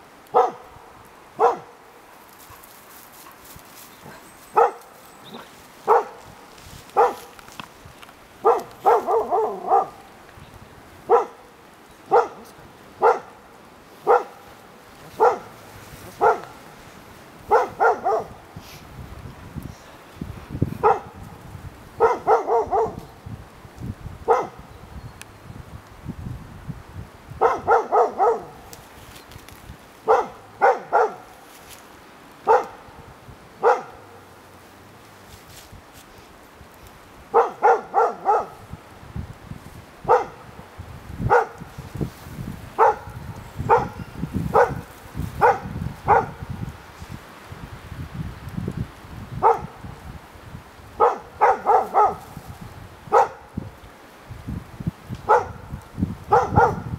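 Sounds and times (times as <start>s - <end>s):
dog barking: 0.3s - 0.7s, 1.4s - 1.8s, 4.0s - 6.2s, 7.0s - 7.3s, 8.4s - 10.0s, 11.1s - 11.5s, 12.1s - 13.4s, 14.0s - 14.5s, 15.1s - 15.6s, 16.2s - 16.6s, 17.5s - 18.4s, 20.8s - 21.2s, 22.0s - 23.0s, 24.3s - 24.6s, 27.4s - 28.6s, 30.0s - 31.3s, 32.4s - 32.8s, 33.6s - 34.2s, 37.3s - 38.6s, 40.1s - 40.5s, 41.3s - 41.6s, 42.8s - 46.4s, 49.4s - 49.7s, 51.0s - 52.3s, 53.1s - 53.5s, 55.3s - 55.7s, 56.3s - 56.9s.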